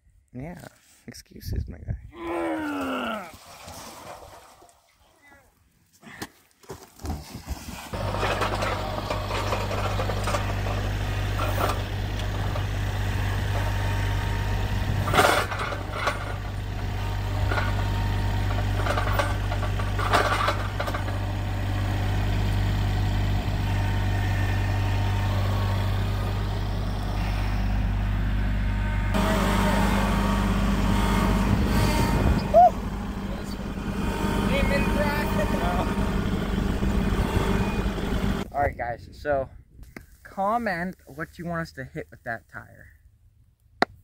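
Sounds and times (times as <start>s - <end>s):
tractor engine running: 7.9s - 38.5s.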